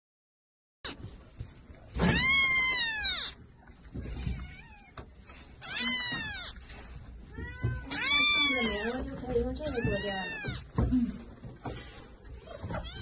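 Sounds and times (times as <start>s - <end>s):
kitten meowing loudly: 2.0s - 3.4s, 5.6s - 6.6s, 7.4s - 9.0s, 9.7s - 10.7s.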